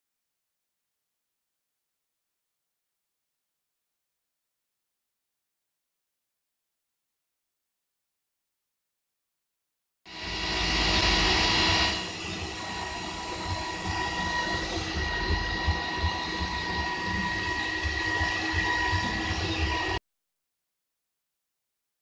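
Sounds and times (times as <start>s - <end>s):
line boring machine whine: 10.1s - 20.0s.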